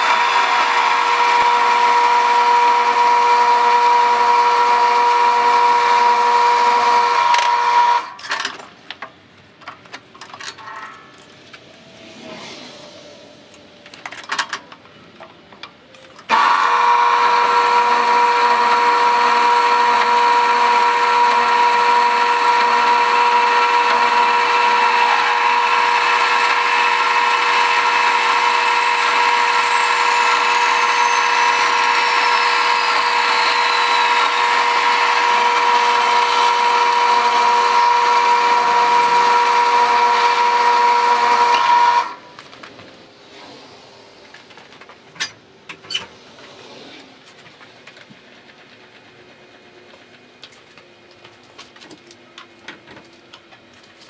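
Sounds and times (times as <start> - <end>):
bandsaw cutting steel: 0.0 - 8.5, 16.3 - 42.2.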